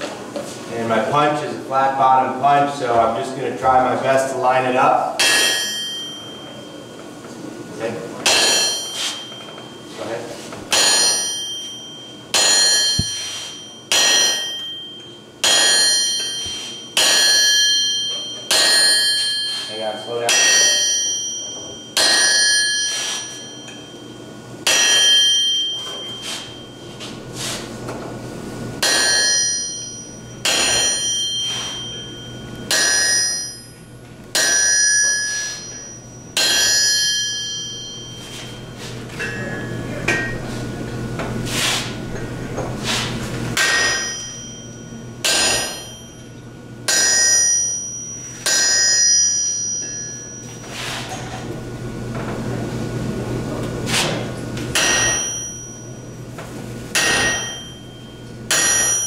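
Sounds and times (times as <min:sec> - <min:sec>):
hammer striking metal: 0:05.2 - 0:07.0, 0:08.2 - 0:09.8, 0:10.7 - 0:24.0, 0:24.6 - 0:26.8, 0:28.8 - 0:40.5, 0:43.6 - 0:50.7, 0:54.7 - 0:56.0, 0:56.9 - 0:59.0.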